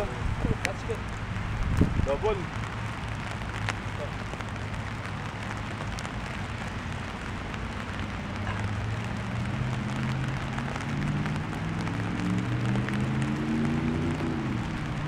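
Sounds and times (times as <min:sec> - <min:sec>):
rain drop ticks: 0:00.0 - 0:15.0
steady rain hiss: 0:00.0 - 0:15.0.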